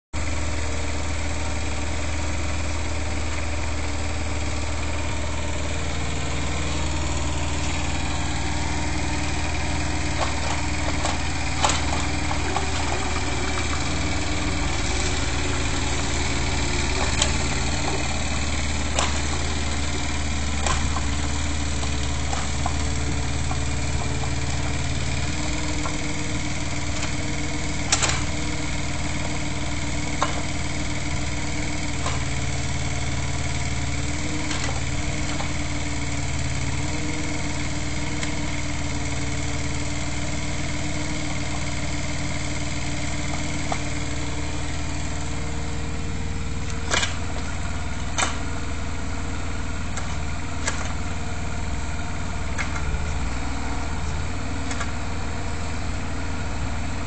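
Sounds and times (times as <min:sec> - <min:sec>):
excavator diesel engine: 0:00.2 - 0:57.0.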